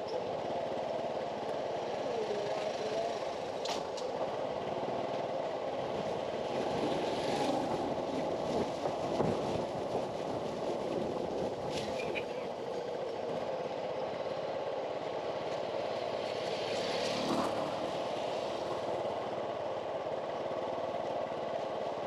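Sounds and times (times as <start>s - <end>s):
small vehicle engine running: 0.0s - 9.7s, 11.2s - 22.0s
motorcycle passing: 16.2s - 18.6s.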